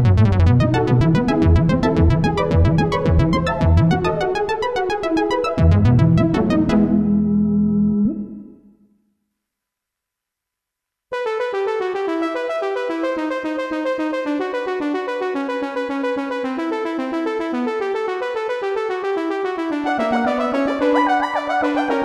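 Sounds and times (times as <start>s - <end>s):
electric piano synth melody: 0.5s - 8.8s, 11.2s - 22.0s
gliding wavering synth notes: 19.9s - 22.0s.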